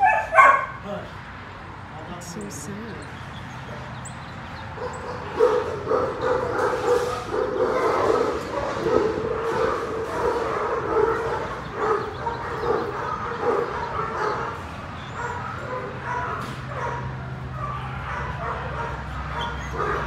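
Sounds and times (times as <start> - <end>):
dog barking: 0.0 - 0.8, 4.8 - 20.0.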